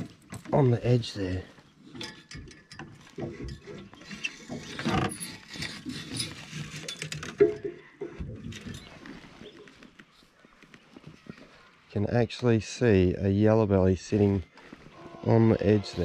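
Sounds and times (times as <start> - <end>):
fishing rods rattling and clicking: 0.0 - 10.0.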